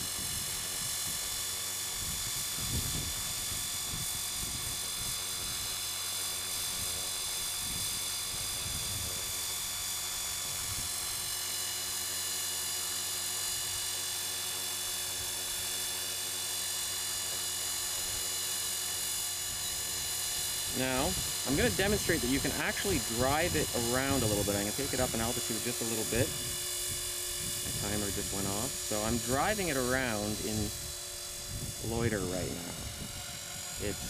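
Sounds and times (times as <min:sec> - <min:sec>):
wind rumble on microphone: 0:00.0 - 0:05.8, 0:06.6 - 0:11.3, 0:19.5 - 0:34.0
rc helicopter whine: 0:00.0 - 0:34.0.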